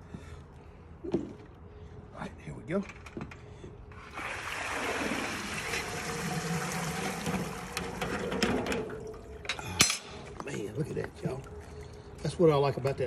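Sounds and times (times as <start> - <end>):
water streaming through basket holes: 4.0 - 9.5.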